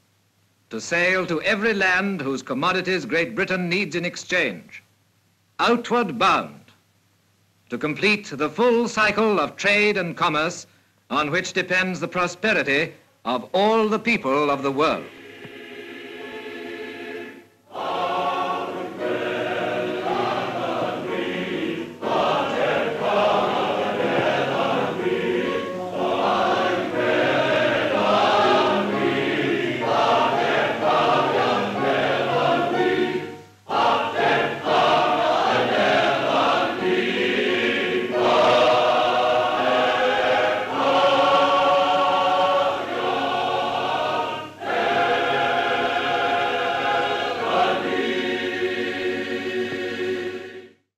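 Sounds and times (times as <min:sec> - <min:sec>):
choir singing: 0:14.6 - 0:50.9.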